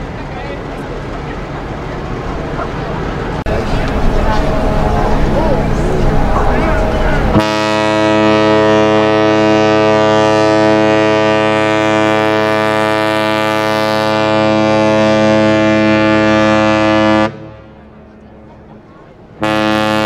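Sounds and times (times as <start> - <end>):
ship's horn blast: 3.4 - 17.9, 19.4 - 20.0.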